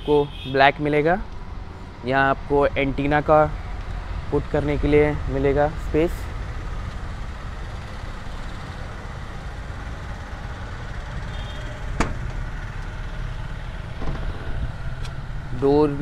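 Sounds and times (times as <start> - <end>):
steady low rumble: 1.2 - 16.0
car door latch click: 12.0 - 12.4.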